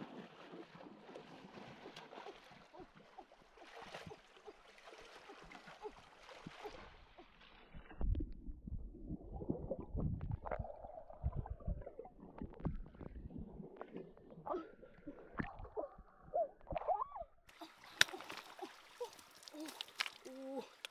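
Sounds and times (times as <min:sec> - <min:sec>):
stream water over rocks: 0:00.0 - 0:08.2, 0:17.5 - 0:20.9
underwater gurgling: 0:06.6 - 0:17.2
low underwater thumps: 0:07.7 - 0:14.4.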